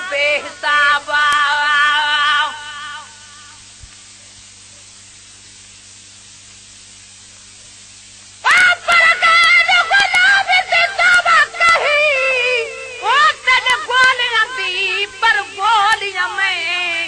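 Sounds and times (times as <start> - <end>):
person singing devotional song: 0.0 - 3.6, 8.4 - 17.0
low hum and hiss: 0.0 - 17.0.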